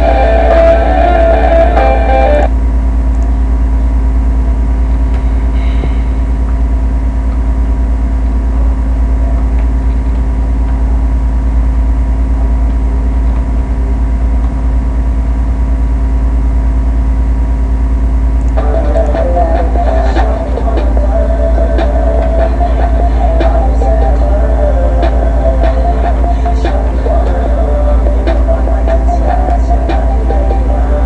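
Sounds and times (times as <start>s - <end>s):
guitar startup sound: 0.0s - 2.6s, 18.5s - 31.0s
loud electrical hum: 0.0s - 31.0s.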